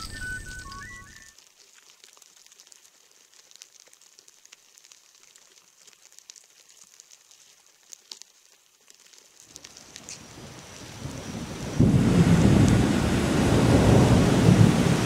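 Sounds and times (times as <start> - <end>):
ants crackling over dry leaves: 0.0 - 13.0
soft hiss: 0.1 - 11.8.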